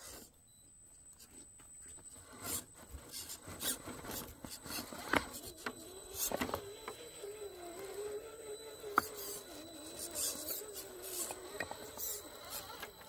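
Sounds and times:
toy car scraping over rocks: 2.2s - 6.7s, 7.3s - 13.0s.

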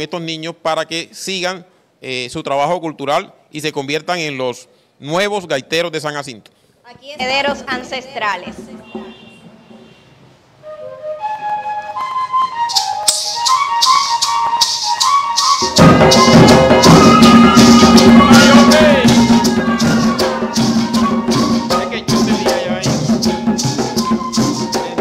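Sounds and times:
shaken maraca rhythm: 7.0s - 10.2s, 11.3s - 25.0s
hand drums: 7.2s - 10.2s, 12.7s - 25.0s
flutes playing a melody: 10.6s - 25.0s.

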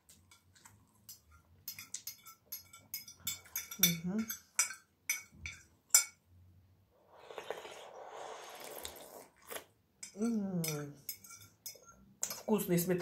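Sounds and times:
fork clinking on plate: 1.1s - 6.2s, 10.0s - 12.5s
slurping sauce: 7.0s - 9.7s.

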